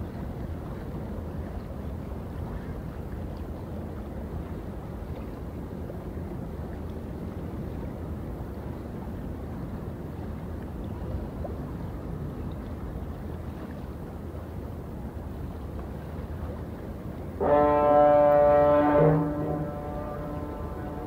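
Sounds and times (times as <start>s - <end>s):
low harbour rumble: 0.0s - 21.0s
water lapping: 0.0s - 21.0s
ship's horn blast: 17.3s - 21.0s.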